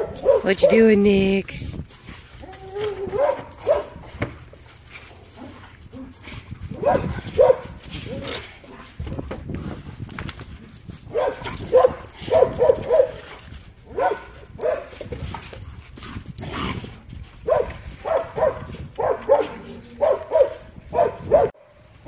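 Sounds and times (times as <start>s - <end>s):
dog barking: 0.0s - 0.8s, 2.9s - 4.0s, 6.8s - 7.8s, 11.1s - 13.2s, 13.9s - 15.0s, 17.4s - 21.6s.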